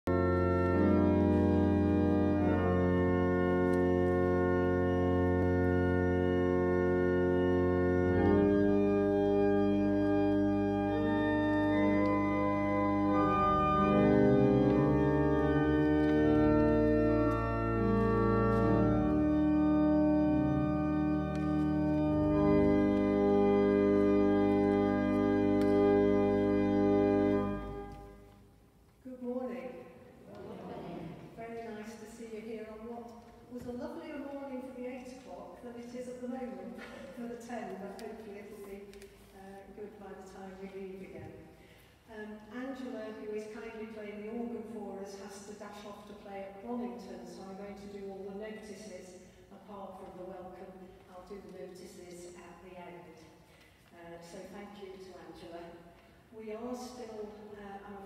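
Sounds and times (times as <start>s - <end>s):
church organ playing chords: 0.1s - 28.4s.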